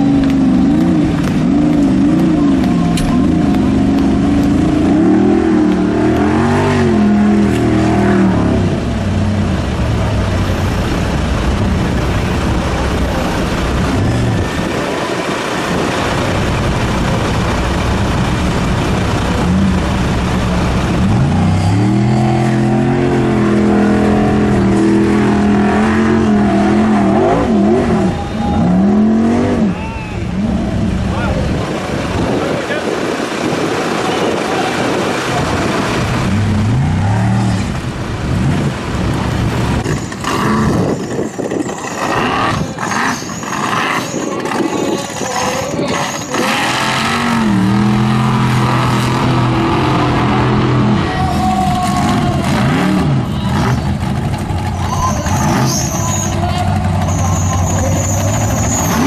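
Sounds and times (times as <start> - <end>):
dense rushing noise: 0.0 - 59.0
engine revving hard: 3.2 - 8.9, 18.8 - 29.8, 42.0 - 51.3, 51.9 - 54.2.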